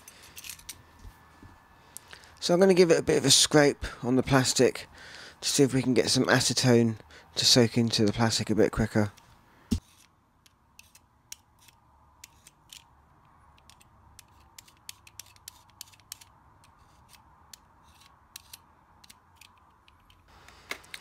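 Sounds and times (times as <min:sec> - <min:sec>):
knife blade scraping plastic: 0:13.6 - 0:19.6.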